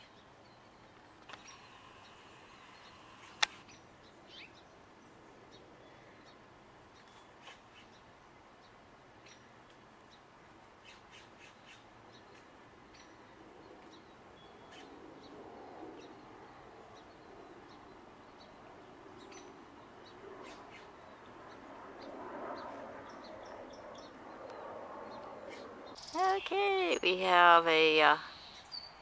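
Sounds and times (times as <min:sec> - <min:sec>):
bird chirps and calls: 0:23.9 - 0:29.0.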